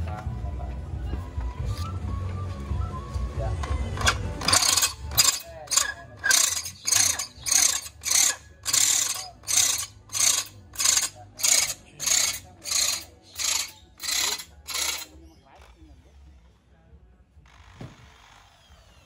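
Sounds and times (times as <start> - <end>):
electric drill grinding metal: 4.0 - 15.2.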